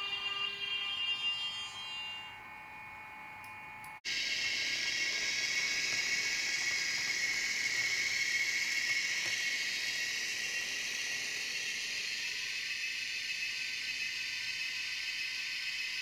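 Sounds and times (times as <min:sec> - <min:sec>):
model train whirring: 0:04.1 - 0:16.0.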